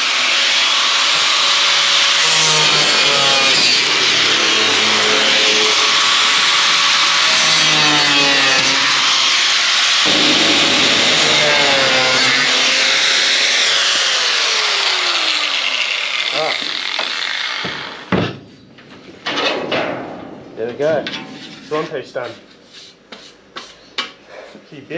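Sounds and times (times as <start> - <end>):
angle grinders cutting metal: 0.0 - 18.1.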